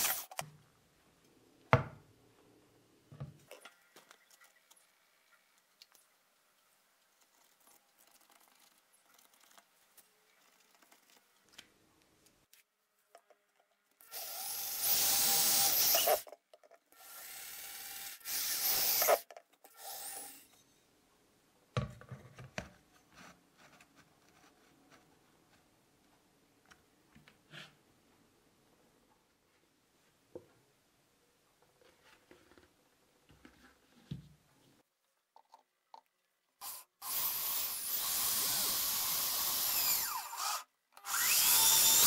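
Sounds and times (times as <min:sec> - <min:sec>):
electric drill boring plastic: 0:00.0 - 0:00.4, 0:14.0 - 0:16.3, 0:17.0 - 0:20.4, 0:36.6 - 0:42.0.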